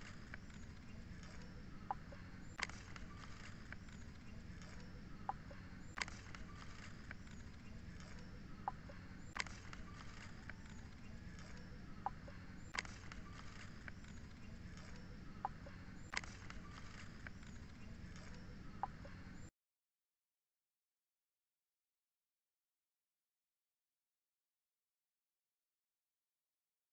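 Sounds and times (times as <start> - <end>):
faint background hum: 0.0 - 19.5.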